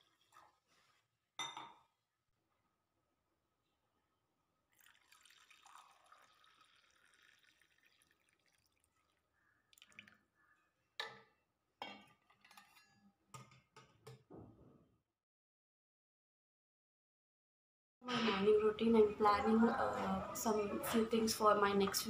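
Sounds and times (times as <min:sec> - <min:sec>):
water trickling into steel bowl: 0:04.7 - 0:10.5.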